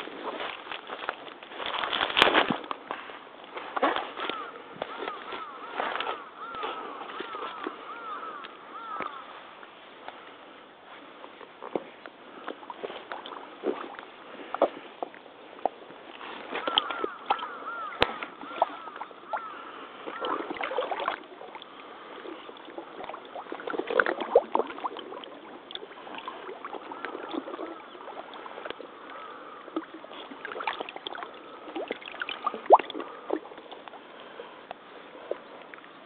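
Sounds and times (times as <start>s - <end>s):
water sloshing around waders: 0.0s - 36.0s
sharp water splash: 20.1s - 21.3s, 29.8s - 33.5s.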